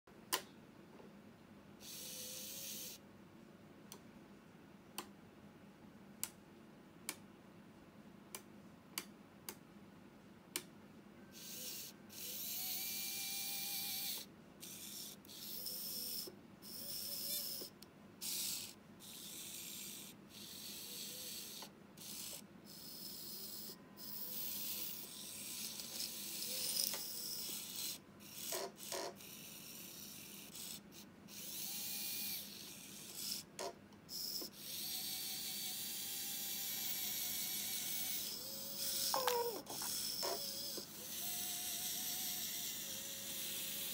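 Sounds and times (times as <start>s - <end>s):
tiny electric motors whirring: 1.8s - 3.0s, 11.4s - 43.9s.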